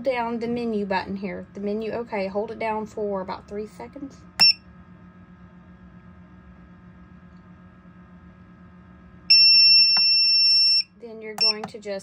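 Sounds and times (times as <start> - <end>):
incubator humming: 0.0 - 12.0
short high beep: 4.4 - 4.6.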